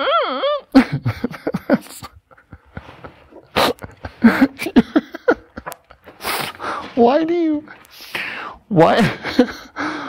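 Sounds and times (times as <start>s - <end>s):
person making whiny vocal noises: 3.3s - 4.8s.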